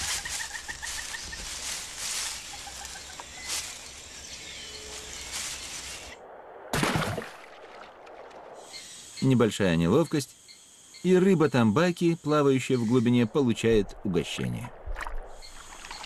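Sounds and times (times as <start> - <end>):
rustling and crackling foliage: 0.0 - 8.6.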